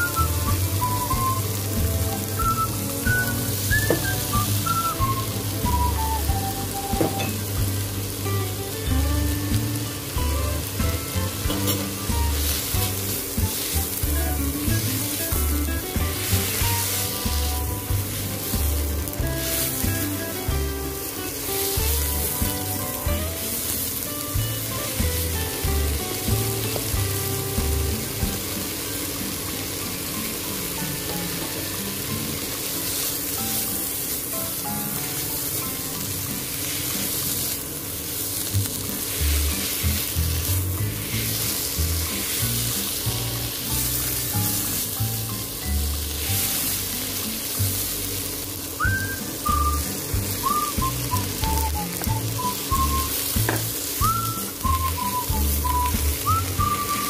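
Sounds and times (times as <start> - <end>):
cabbage sizzling in hot oil: 0.0 - 57.0
spatula scraping a wok: 11.3 - 15.4, 36.4 - 48.0.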